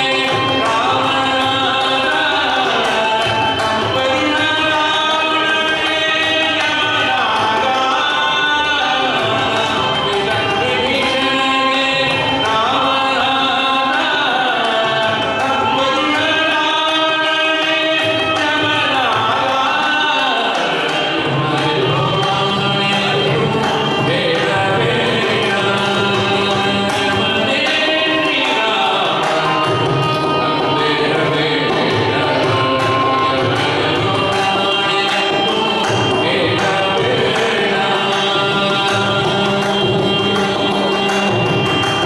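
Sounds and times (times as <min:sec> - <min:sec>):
man singing: 0:00.0 - 0:42.0
violin: 0:00.0 - 0:42.0
hand drum: 0:17.6 - 0:42.0.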